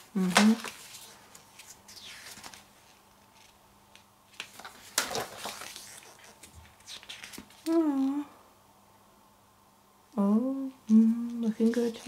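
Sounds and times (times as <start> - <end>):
paper pages rustling: 0.0 - 7.8.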